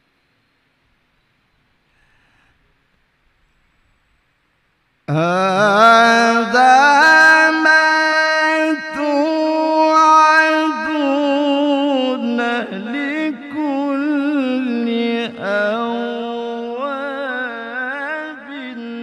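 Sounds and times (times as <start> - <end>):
man reciting melodically: 5.1 - 19.0.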